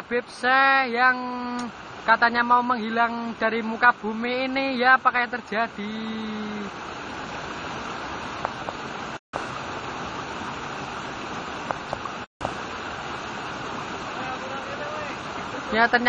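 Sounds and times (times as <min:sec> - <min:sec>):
steady rushing noise: 0:05.2 - 0:16.0.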